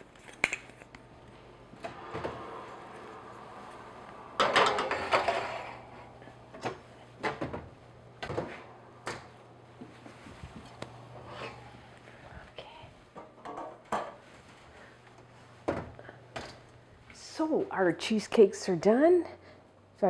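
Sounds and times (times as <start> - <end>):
oven door shutting: 1.8 - 9.3
metal pan scraping on oven rack: 4.4 - 6.1.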